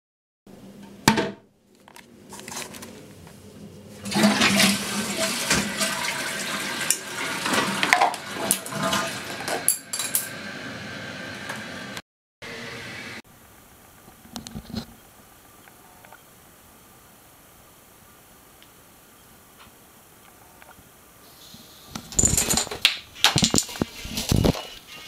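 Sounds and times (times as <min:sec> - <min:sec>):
toilet flush click: 0:04.0 - 0:10.2.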